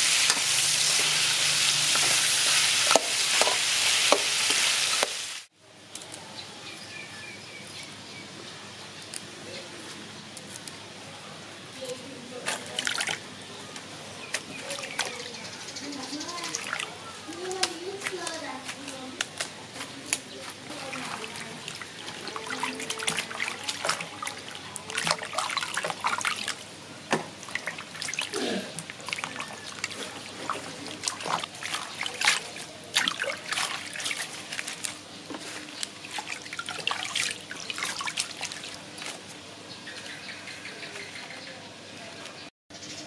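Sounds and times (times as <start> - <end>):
water splashing in a metal bowl: 12.5 - 13.3, 16.2 - 19.5, 20.1 - 26.6, 27.2 - 35.0, 35.7 - 39.1
water dripping: 20.1 - 26.6, 27.4 - 34.9, 35.8 - 38.8.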